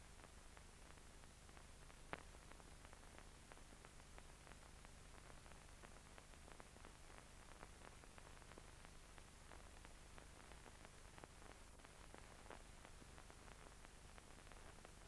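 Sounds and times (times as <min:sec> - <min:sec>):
film soundtrack hiss: 0:00.0 - 0:15.0.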